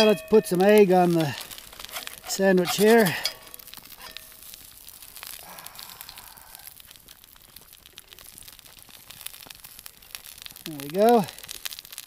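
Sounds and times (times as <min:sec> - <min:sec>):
metal spatula scraping pot: 0:00.0 - 0:04.4
campfire crackling: 0:00.0 - 0:12.0
light rain ticking: 0:00.0 - 0:12.0.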